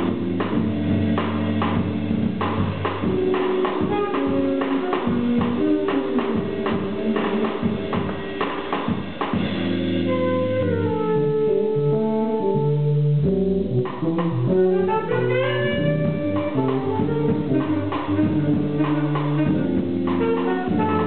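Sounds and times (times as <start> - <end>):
bass: 0.0 - 21.0
drums: 0.0 - 21.0
saxophone playing: 3.1 - 7.9, 10.0 - 21.0.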